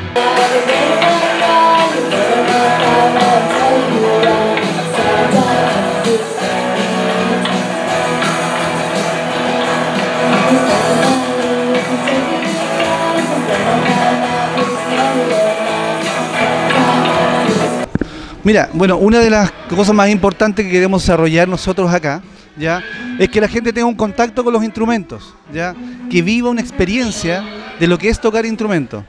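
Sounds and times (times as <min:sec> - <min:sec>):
girl singing lead: 0:00.0 - 0:17.9
electric guitars: 0:00.0 - 0:21.1, 0:22.2 - 0:28.0
bass guitar: 0:00.0 - 0:21.2.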